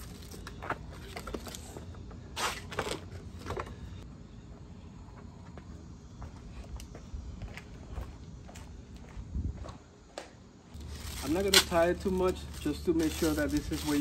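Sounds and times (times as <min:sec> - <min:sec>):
packaging rustling: 0:10.8 - 0:14.0.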